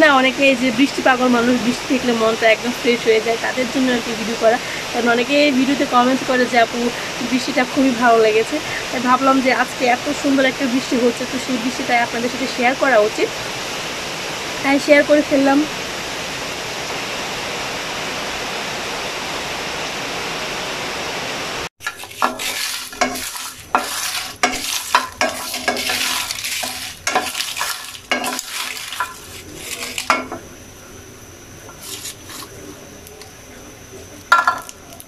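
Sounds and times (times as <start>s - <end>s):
rain hiss: 0.0s - 35.0s
seeds clattering in a pan: 21.8s - 30.4s, 31.7s - 32.5s
spatula scraping a pan: 21.8s - 30.4s, 31.7s - 32.6s.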